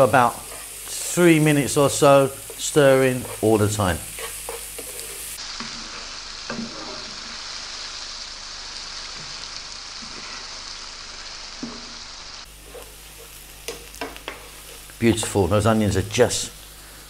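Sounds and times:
onions sizzling in a frying pan: 0:00.0 - 0:17.0
wooden spoon scraping pan: 0:00.3 - 0:01.1, 0:02.4 - 0:07.4, 0:10.0 - 0:10.6, 0:12.6 - 0:15.4.

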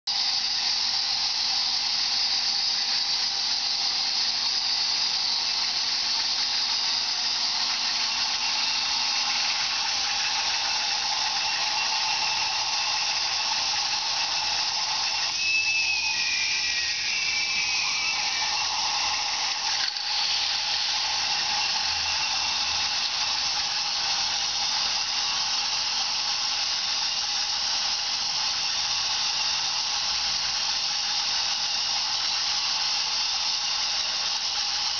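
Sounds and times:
toy chain lift whirring: 0:00.1 - 0:34.9
plastic cars running on track: 0:00.3 - 0:34.9
high squeal: 0:05.0 - 0:26.2.

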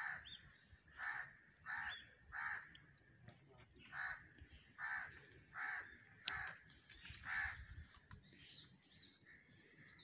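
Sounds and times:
crow cawing: 0:00.0 - 0:02.9, 0:03.9 - 0:06.6, 0:07.2 - 0:07.7.

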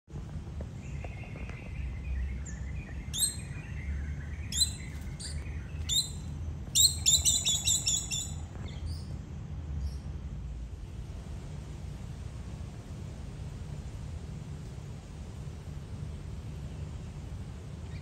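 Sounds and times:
steady low rumble: 0:00.1 - 0:18.0
high bird trill: 0:00.9 - 0:09.1.

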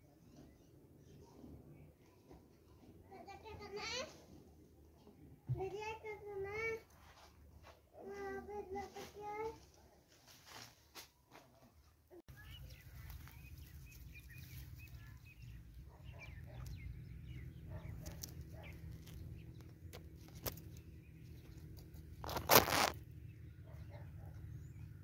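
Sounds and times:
rustling in grass: 0:12.3 - 0:16.6, 0:21.6 - 0:23.0.

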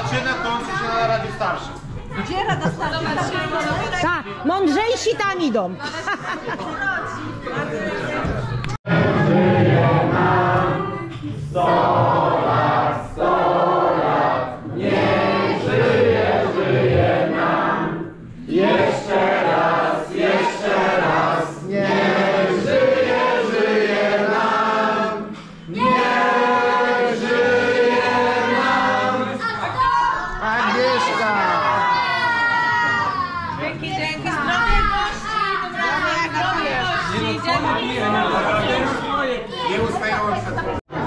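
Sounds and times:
group of people singing: 0:08.9 - 0:32.4.

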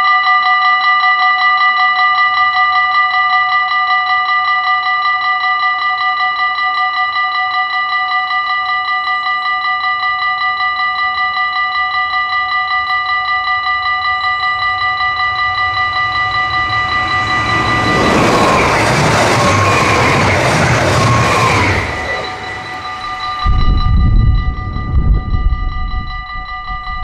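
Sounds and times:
level crossing bells ringing: 0:00.0 - 0:27.0
passing train rushing: 0:11.6 - 0:27.0.

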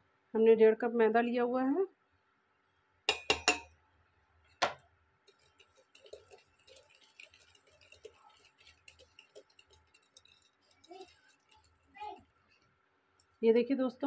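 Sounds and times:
utensils clinking on steel pot: 0:03.1 - 0:03.7, 0:04.6 - 0:13.4
wire whisk stirring batter: 0:04.6 - 0:13.4.

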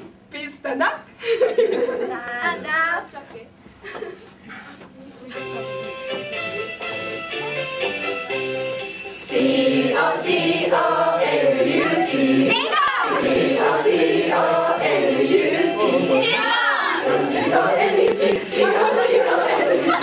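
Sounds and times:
instrumental music: 0:05.2 - 0:20.0
group of voices singing: 0:09.2 - 0:20.0.

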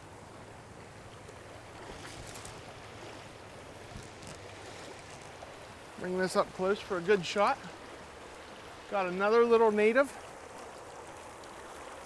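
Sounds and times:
faint water splashes: 0:00.0 - 0:12.0
stream rushing over riffle: 0:00.0 - 0:12.0.

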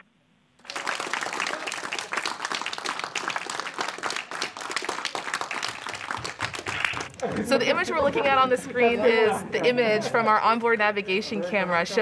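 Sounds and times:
crowd applauding: 0:00.6 - 0:07.5.

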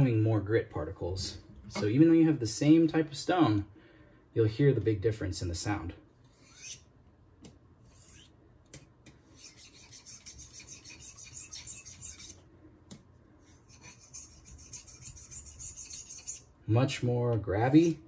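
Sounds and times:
knife sharpening on whetstone: 0:06.3 - 0:06.8, 0:07.9 - 0:08.3, 0:09.3 - 0:12.4, 0:13.5 - 0:16.5.

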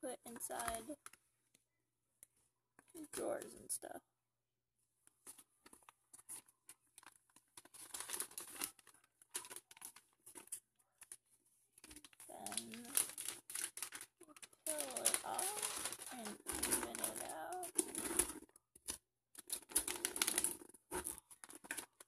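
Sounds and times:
person speaking: 0:00.0 - 0:01.0, 0:03.0 - 0:04.0, 0:11.9 - 0:13.1, 0:14.2 - 0:17.8
contact paper crinkling: 0:05.1 - 0:22.0.

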